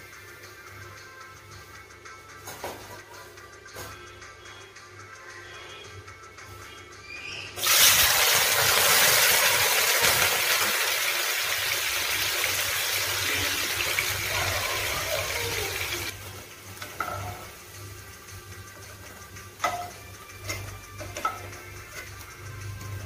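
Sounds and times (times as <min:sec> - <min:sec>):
vegetables sizzling in hot oil: 0:07.6 - 0:18.4.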